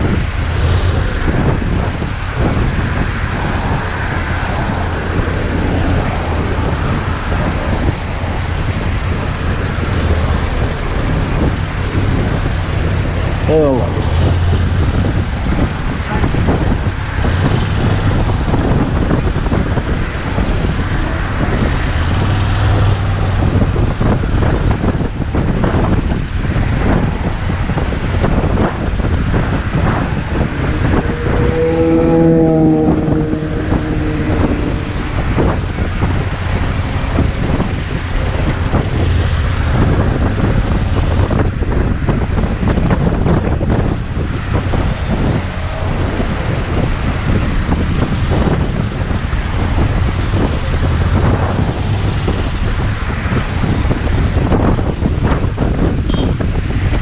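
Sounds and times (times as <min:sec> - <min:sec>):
motorcycle engine and road noise: 0:00.0 - 0:57.0
wind rushing over microphone: 0:00.0 - 0:57.0
steady pitched tone: 0:29.9 - 0:37.0.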